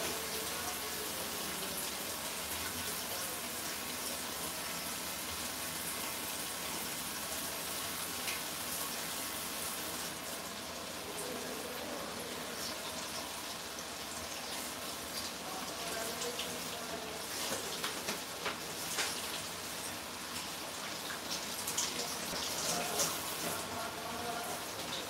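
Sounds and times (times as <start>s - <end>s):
tap water running into sink: 12.4s - 23.7s.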